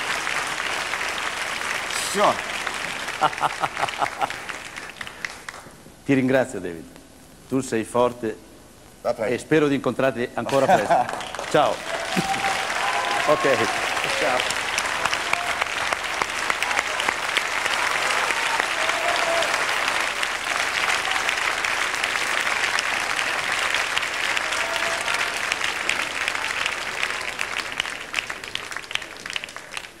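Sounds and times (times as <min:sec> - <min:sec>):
audience applauding: 0:00.0 - 0:05.8, 0:10.5 - 0:30.0.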